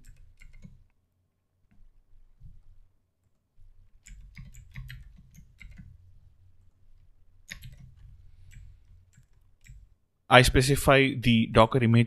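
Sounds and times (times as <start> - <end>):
keyboard typing: 0.0 - 1.0, 3.2 - 10.0.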